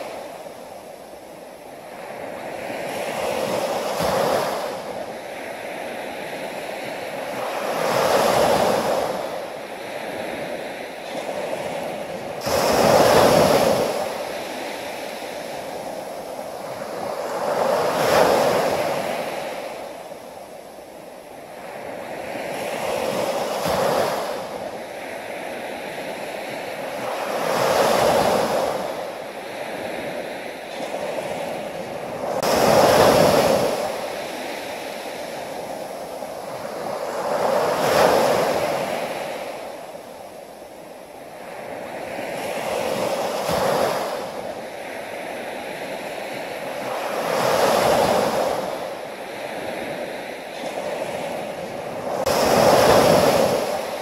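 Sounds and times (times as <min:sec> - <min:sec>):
ocean waves breaking: 0:00.0 - 0:54.0.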